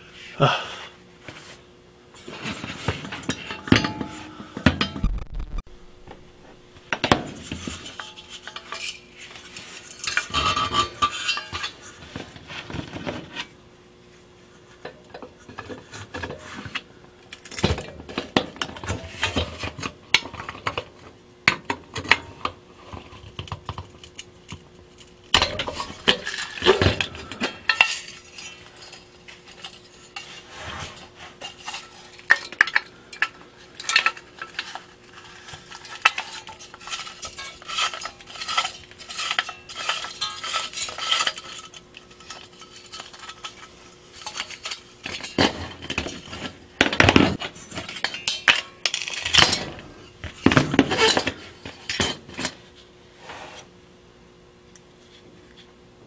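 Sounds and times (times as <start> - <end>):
metal lamp clinks and rattles: 25.0 - 30.4, 31.4 - 52.6.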